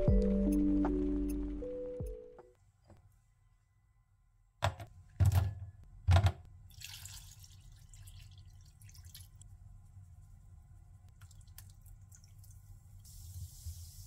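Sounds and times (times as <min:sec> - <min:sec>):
water dripping: 0:11.1 - 0:13.2.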